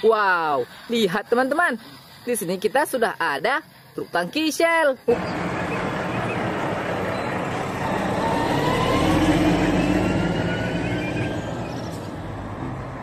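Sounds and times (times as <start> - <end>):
truck driving past: 5.1 - 13.0.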